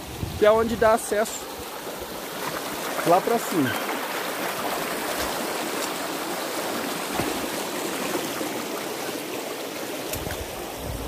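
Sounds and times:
stream splashing over stones: 0:00.0 - 0:11.0
dull thump: 0:07.1 - 0:07.6.

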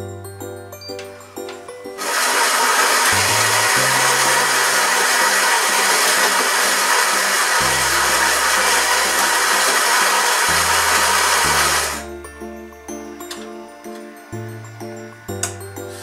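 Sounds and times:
background music with bass: 0:00.0 - 0:02.0, 0:03.1 - 0:05.1, 0:07.5 - 0:16.0
coffee grinder whirring: 0:02.0 - 0:12.1.

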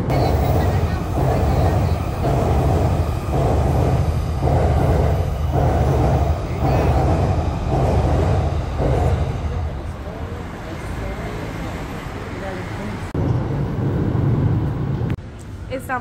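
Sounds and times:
wheels clattering over rails: 0:00.0 - 0:12.0
train rumbling past: 0:00.0 - 0:16.0.

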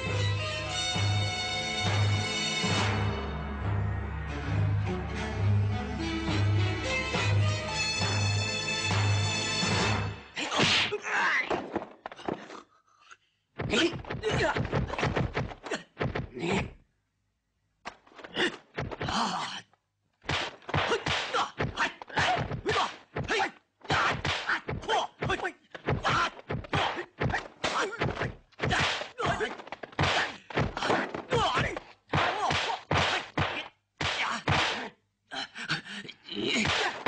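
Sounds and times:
punch and block impacts: 0:13.6 - 0:16.7, 0:20.2 - 0:35.0, 0:36.5 - 0:37.0.

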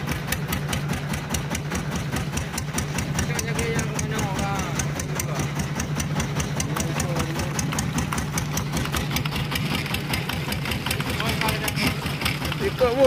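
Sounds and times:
boat engine knocking: 0:00.0 - 0:13.0.

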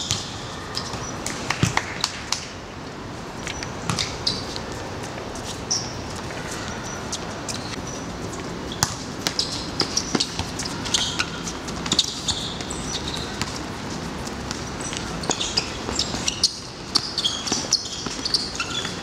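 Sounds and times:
steady background noise: 0:00.0 - 0:19.0
shoe squeaks: 0:03.5 - 0:04.8, 0:05.4 - 0:14.0, 0:14.7 - 0:19.0.

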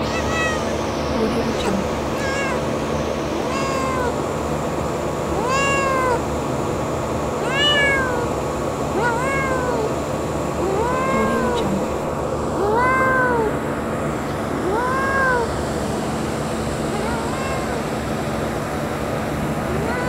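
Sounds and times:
kitten meowing: 0:00.0 - 0:00.9, 0:01.5 - 0:04.3, 0:05.3 - 0:06.3, 0:07.4 - 0:08.3, 0:09.0 - 0:10.0, 0:10.6 - 0:13.6, 0:14.6 - 0:15.6, 0:16.9 - 0:18.0, 0:19.7 - 0:20.0
steady background noise: 0:00.0 - 0:20.0.

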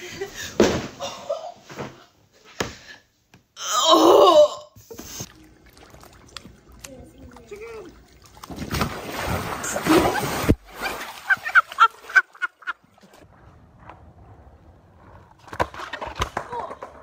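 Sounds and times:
water churning: 0:05.2 - 0:13.4
big splash into pool: 0:08.3 - 0:13.2.

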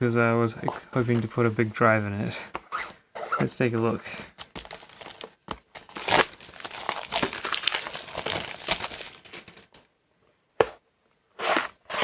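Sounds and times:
plastic wrapping crinkling and tearing: 0:04.4 - 0:09.8.

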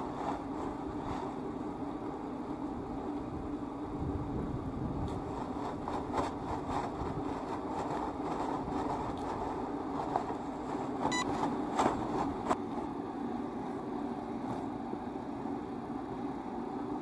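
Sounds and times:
umbrella opening clicks and rustle: 0:05.0 - 0:12.6.

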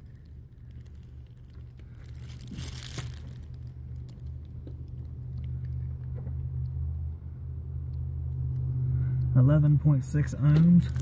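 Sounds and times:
crackling rustle: 0:00.0 - 0:06.2
steady low rumble: 0:00.0 - 0:11.0.

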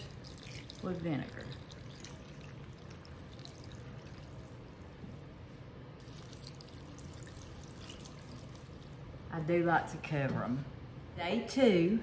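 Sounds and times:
vinegar pouring: 0:00.0 - 0:05.3, 0:06.0 - 0:09.2.

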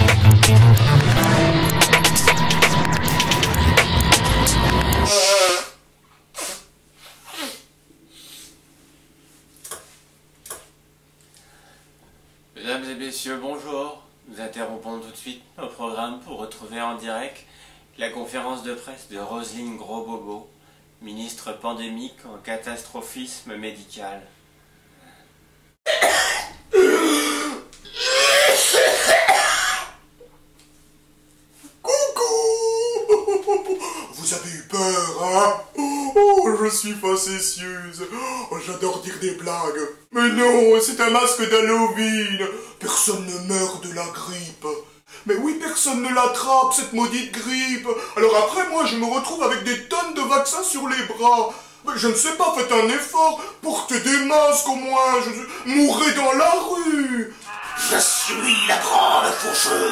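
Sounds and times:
loud title music: 0:00.0 - 0:05.1
man sneezing: 0:05.1 - 0:08.6, 0:25.9 - 0:30.0
person sniffing: 0:05.1 - 0:08.6
person coughing: 0:25.9 - 0:30.0.

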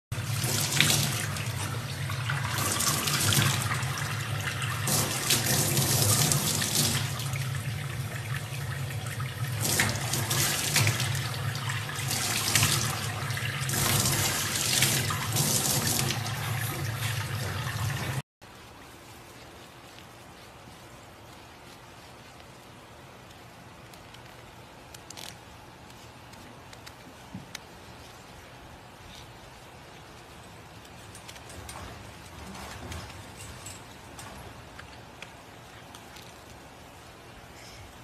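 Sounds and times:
tap water splashing into sink: 0:08.3 - 0:18.2.

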